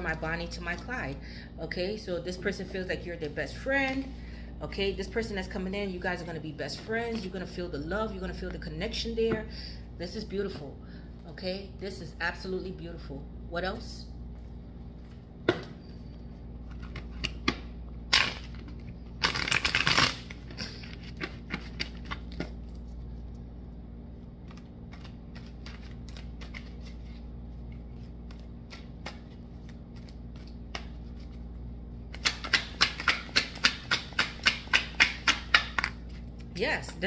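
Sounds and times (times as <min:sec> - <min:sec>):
cards shuffling: 0:18.1 - 0:22.9, 0:24.4 - 0:36.5.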